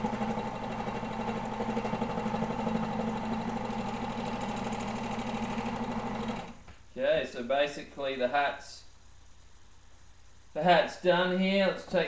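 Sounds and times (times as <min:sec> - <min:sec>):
overlock sewing machine running: 0:00.0 - 0:06.6.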